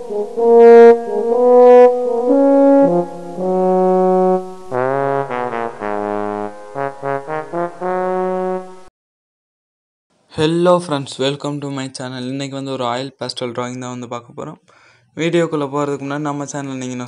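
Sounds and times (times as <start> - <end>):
intro music: 0.0 - 8.9.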